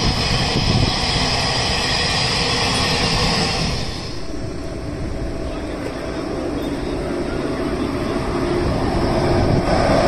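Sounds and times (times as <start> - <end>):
high hiss: 0.0 - 5.2
train wheels rumbling on rails: 0.0 - 10.0.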